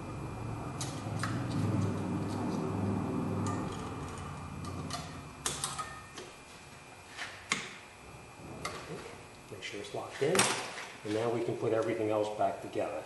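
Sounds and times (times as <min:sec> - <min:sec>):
low hum: 0:00.0 - 0:07.0, 0:07.8 - 0:09.9.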